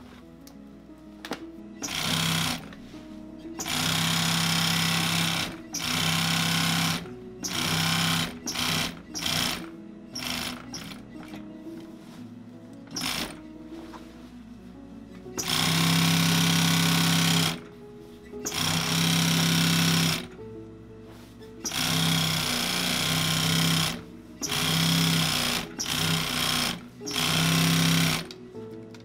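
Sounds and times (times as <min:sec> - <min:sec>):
sewing machine stitching: 0:01.8 - 0:02.7, 0:03.6 - 0:11.4, 0:12.9 - 0:13.4, 0:15.4 - 0:17.7, 0:18.4 - 0:20.4, 0:21.6 - 0:28.3.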